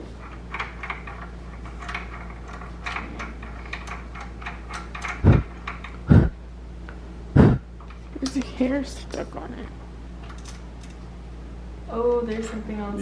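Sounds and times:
ratchet wrench clicking: 0.5s - 6.0s
loud dull thumps: 5.2s - 5.5s, 6.1s - 6.4s, 7.4s - 7.7s.

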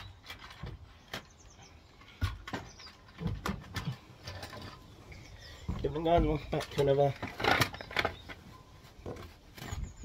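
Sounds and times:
objects knocking on wooden decking: 2.1s - 4.8s, 5.6s - 8.4s.

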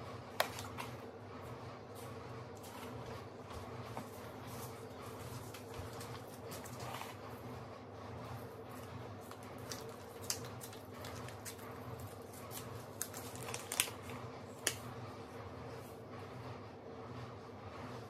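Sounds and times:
steady low hum: 0.0s - 18.0s
paper packets crackling: 9.2s - 14.8s.

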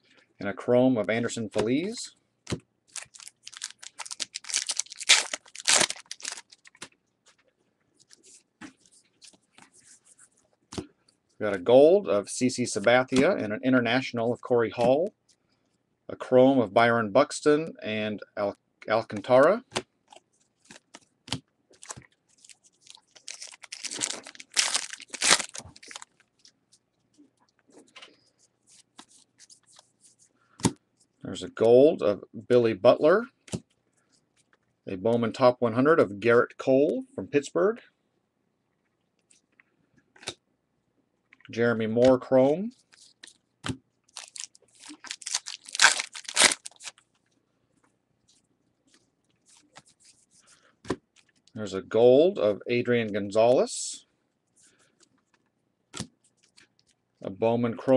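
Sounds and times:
foil wrapper tearing and crinkling: 2.9s - 6.8s, 21.8s - 26.3s, 44.1s - 47.0s.

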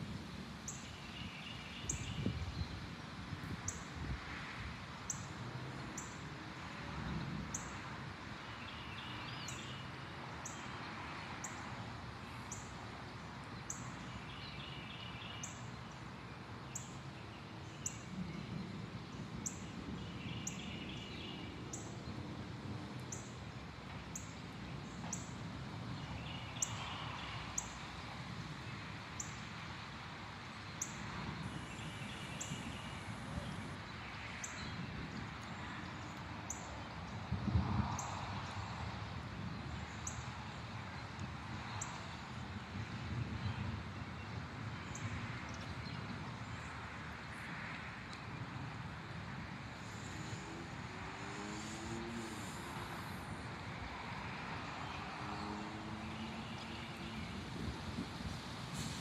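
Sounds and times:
songbird singing: 0.7s - 2.8s, 8.4s - 22.2s, 23.0s - 28.0s, 30.6s - 37.2s, 49.8s - 57.6s.

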